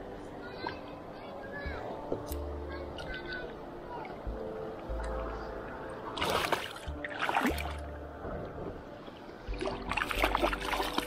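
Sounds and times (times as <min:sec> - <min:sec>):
water splashing: 0:06.0 - 0:08.0, 0:09.0 - 0:11.0.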